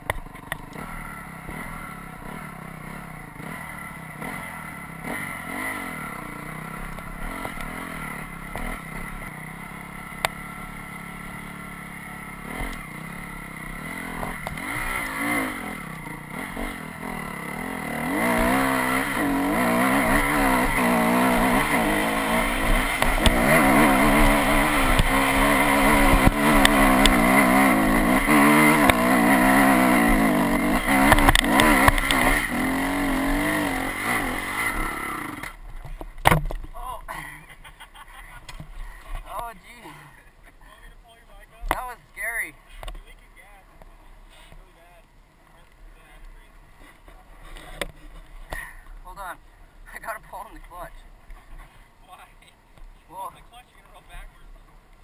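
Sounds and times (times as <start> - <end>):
dirt bike engine revving: 0.0 - 40.3.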